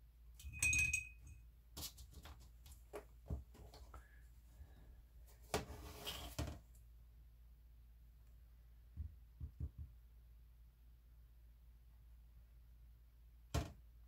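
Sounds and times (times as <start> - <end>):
brush clinking against glass jar: 0.4 - 1.4
light taps and knocks on tabletop: 9.0 - 10.0.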